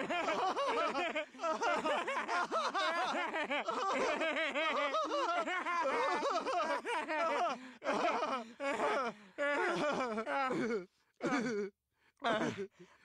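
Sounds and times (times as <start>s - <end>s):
cartoon voices laughing: 0.0s - 8.4s.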